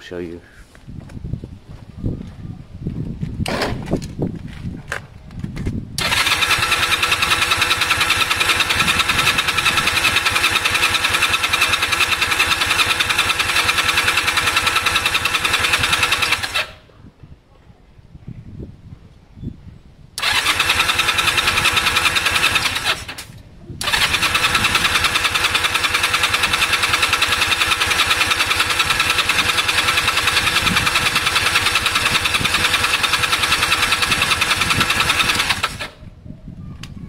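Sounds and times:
engine cranking on starter: 6.0s - 16.8s, 20.2s - 36.0s.

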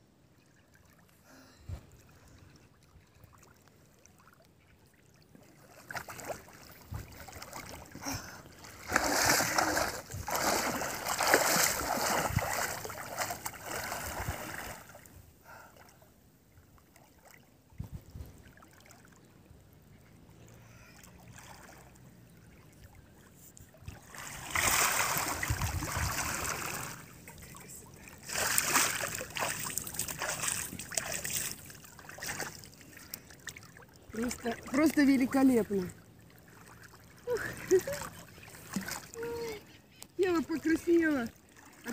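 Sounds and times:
water splashing and sloshing: 0.1s - 41.9s.

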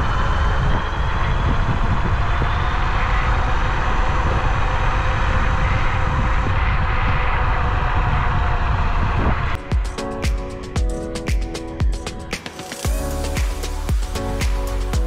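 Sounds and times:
wind buffeting on microphone: 0.0s - 10.6s.

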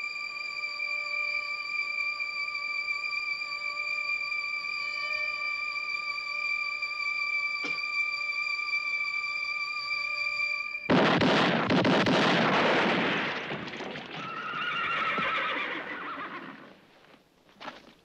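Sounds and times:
echoing gunshots: 10.9s - 14.2s
horses whinnying: 13.7s - 16.8s.

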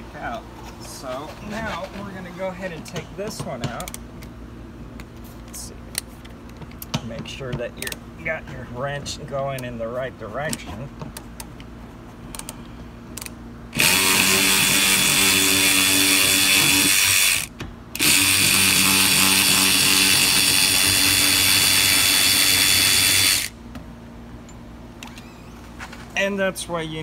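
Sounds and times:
cordless impact wrench running: 13.7s - 23.6s.

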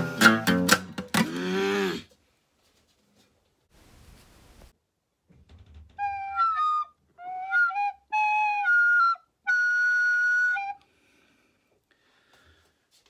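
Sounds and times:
recorder melody: 6.0s - 10.8s.

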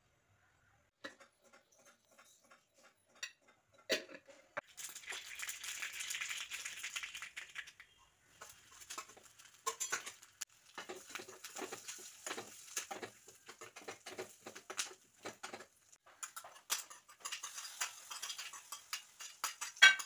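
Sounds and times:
mustard seeds spluttering in oil: 4.6s - 13.8s.

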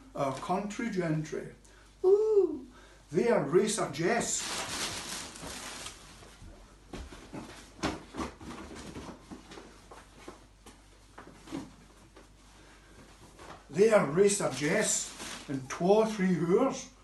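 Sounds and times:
plastic bin bags rustling: 4.0s - 6.4s, 13.1s - 15.8s
clothes rustling: 4.0s - 16.1s.

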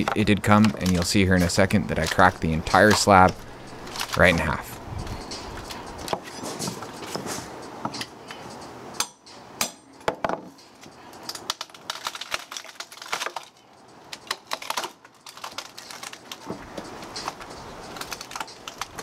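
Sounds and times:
wood cracking: 0.0s - 4.6s, 11.3s - 19.0s
hammer striking metal pry bar: 9.0s - 10.3s.

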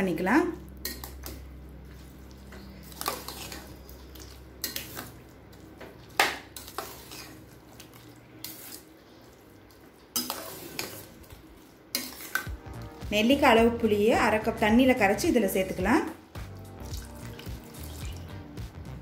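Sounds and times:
ladle scraping metal pot: 2.5s - 5.3s, 6.6s - 8.9s, 10.1s - 11.3s, 11.9s - 12.5s.

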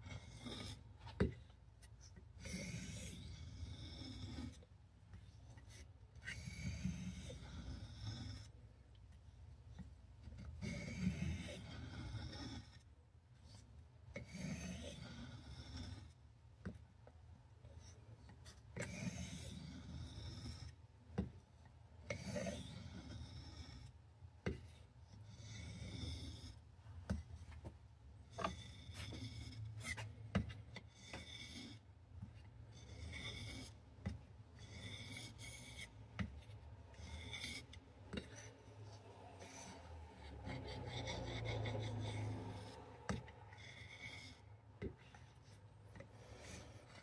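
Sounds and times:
knife scraping on sharpening stone: 2.4s - 4.6s, 6.2s - 8.5s, 10.4s - 12.8s, 14.1s - 16.1s, 18.8s - 20.7s, 22.1s - 23.9s, 25.2s - 26.6s, 28.3s - 30.1s, 30.7s - 31.8s, 32.7s - 44.5s, 45.9s - 47.0s.

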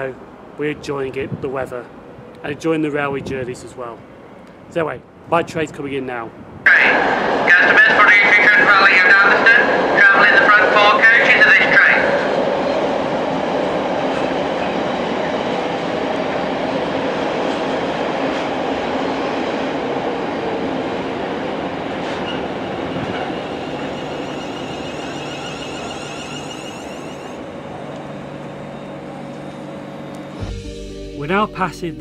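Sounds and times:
train wheels and motors rumbling: 12.4s - 30.4s
faint high whine: 23.8s - 30.4s.

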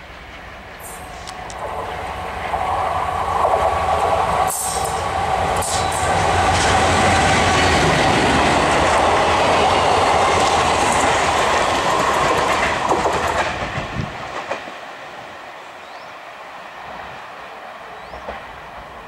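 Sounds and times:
train wheels on rails: 0.0s - 19.0s
clacks over rail joints: 5.6s - 14.8s.

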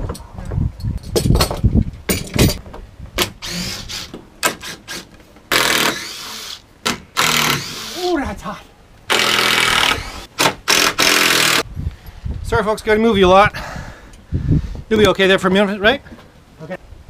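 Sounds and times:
cordless drill running: 7.2s - 8.0s, 9.1s - 11.6s.

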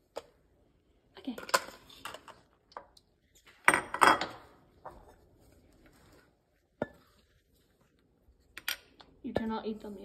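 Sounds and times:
pot and utensils clattering: 3.6s - 5.0s.

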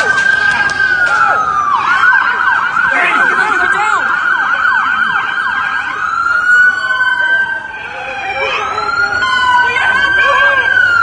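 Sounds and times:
siren steady tone: 0.0s - 11.0s
siren yelping: 0.0s - 11.0s.

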